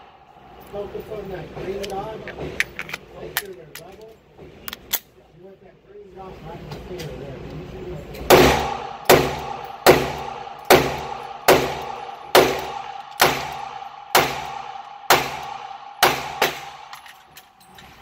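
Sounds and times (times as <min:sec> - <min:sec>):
pistol slide locking back: 0:04.7 - 0:05.1
pistol shots indoors: 0:08.3 - 0:17.6.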